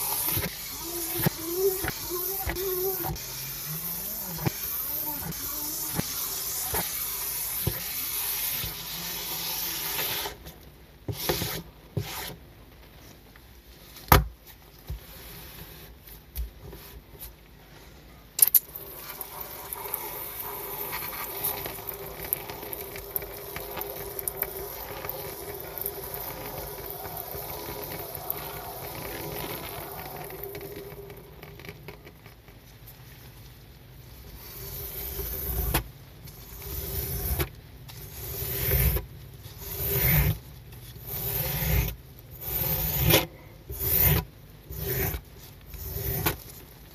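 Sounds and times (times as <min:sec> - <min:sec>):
squeegee dragging water across carpet: 0:00.0 - 0:10.4, 0:18.7 - 0:31.7, 0:34.1 - 0:46.7
squeegee scraping water on plastic: 0:00.0 - 0:10.4, 0:18.6 - 0:32.4, 0:34.2 - 0:46.7
steady rubbing: 0:18.8 - 0:32.1.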